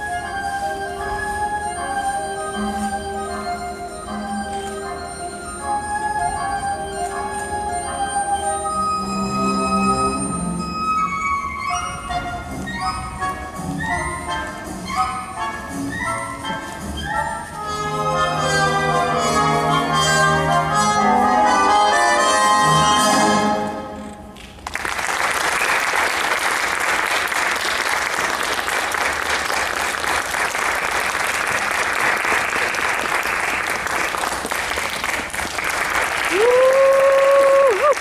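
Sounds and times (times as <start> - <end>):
orchestral ballet music: 0.0 - 24.6
audience applause: 24.4 - 38.0.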